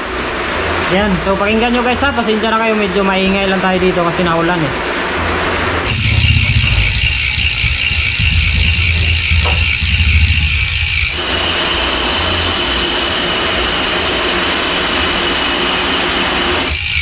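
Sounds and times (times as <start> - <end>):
bicycle freehub clicking buzz: 5.8 - 17.0.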